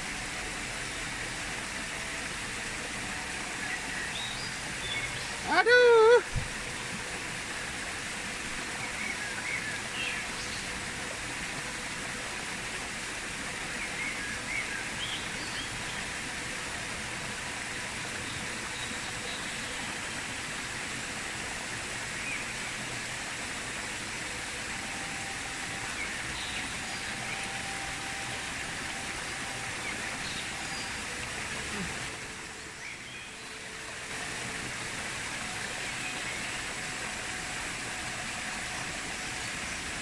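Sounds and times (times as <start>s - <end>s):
stream water rushing: 0.0s - 40.0s.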